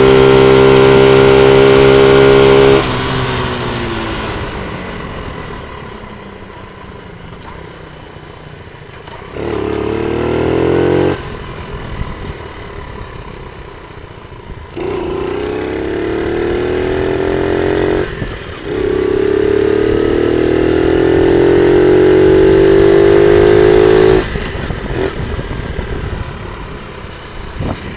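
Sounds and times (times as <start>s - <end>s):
dirt bike engine revving: 0.0s - 4.6s, 9.1s - 11.4s, 14.7s - 26.1s.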